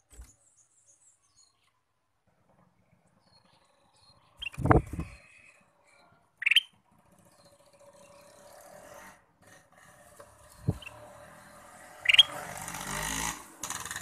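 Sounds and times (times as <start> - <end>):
bird call: 6.4 - 6.8, 12.0 - 12.4.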